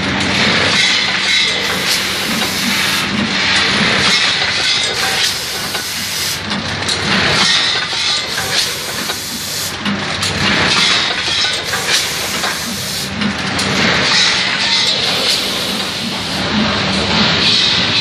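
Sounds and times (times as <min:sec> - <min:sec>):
machine mechanical clatter: 0:00.0 - 0:18.0
compressed air hisses: 0:01.6 - 0:03.1, 0:04.9 - 0:06.4, 0:08.3 - 0:09.8, 0:11.6 - 0:13.1, 0:15.0 - 0:16.4.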